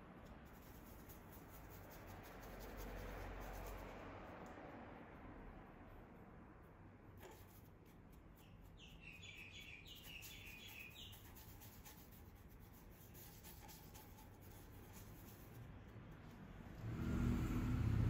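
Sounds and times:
paintbrush scratching on canvas: 0.4 - 4.1, 7.1 - 16.4.

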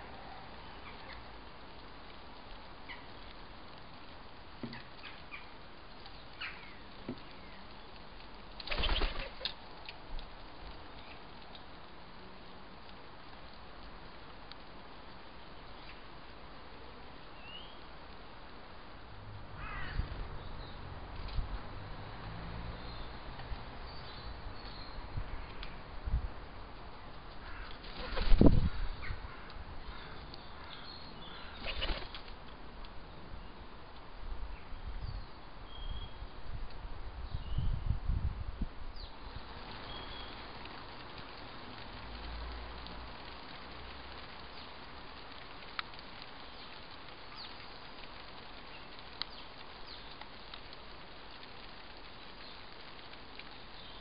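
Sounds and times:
small birds chirping: 0.5 - 1.5, 2.6 - 4.0, 4.6 - 9.9, 15.0 - 16.4, 17.1 - 17.9, 22.8 - 25.8, 27.0 - 32.3, 38.9 - 42.4, 43.4 - 54.0
pigeon wings flapping: 8.6 - 9.6, 27.5 - 28.8, 31.5 - 32.4.

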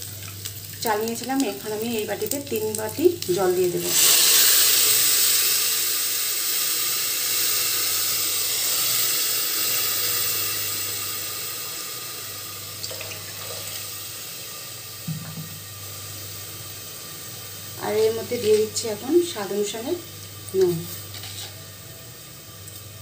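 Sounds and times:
water splashing into pot: 0.0 - 5.6, 12.6 - 13.9
water sizzling in hot pan: 0.0 - 23.0.

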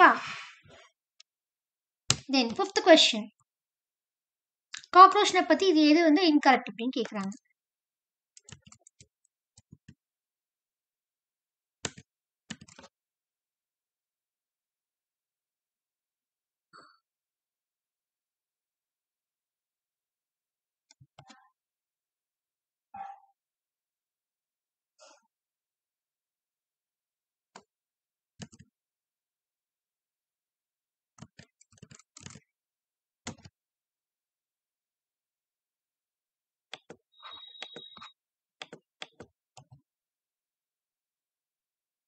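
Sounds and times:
keyboard typing clicks: 11.8 - 12.9, 31.2 - 32.4, 36.7 - 39.8.

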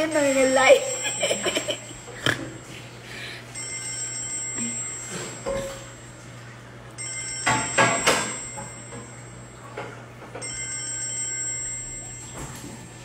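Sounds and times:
high electronic ringing tone: 0.0 - 2.0, 3.5 - 6.2, 7.0 - 9.6, 10.4 - 13.0.

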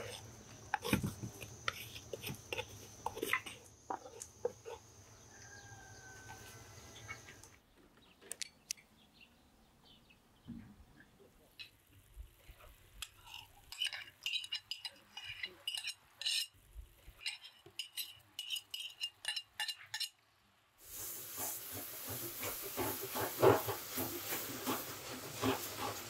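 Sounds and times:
metal spoon scraping wooden mortar: 0.0 - 4.8, 13.0 - 20.2, 21.3 - 26.0.

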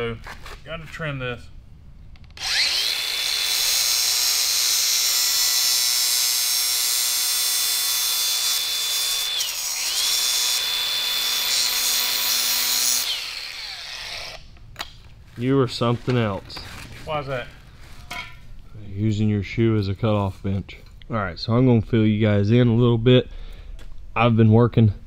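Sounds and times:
angle grinder whining: 2.2 - 14.6
grinder cutting steel cable: 2.3 - 14.9.

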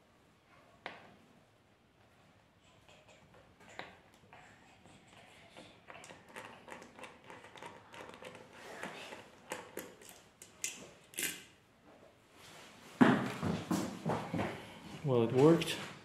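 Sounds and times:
screwdriver metal ticks and scrapes: 9.1 - 11.5.

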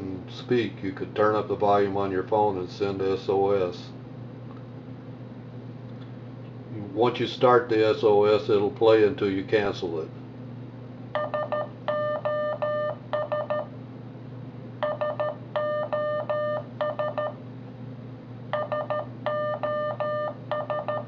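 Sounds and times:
steady low hum: 0.0 - 21.0
morse code beeps: 11.2 - 13.7, 14.8 - 17.4, 18.5 - 21.0.

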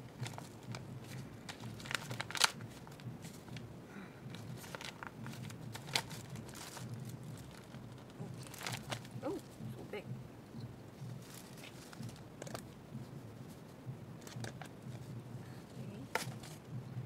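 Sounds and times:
paper rustling and crinkling: 0.0 - 3.6, 4.3 - 9.6, 11.0 - 15.1, 16.1 - 16.6.

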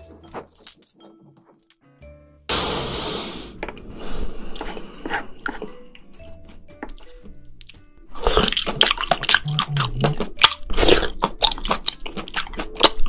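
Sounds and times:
loud hiss: 2.5 - 3.6
close chewing: 4.5 - 13.0.

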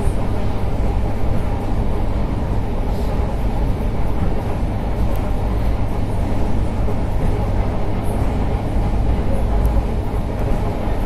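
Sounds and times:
train rumble from on board: 0.0 - 11.0.

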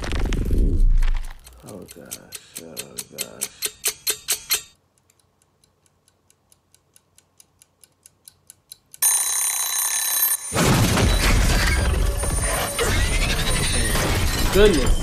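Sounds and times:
kitchen timer ticking: 1.4 - 9.0
timer bell ringing: 9.0 - 10.6.

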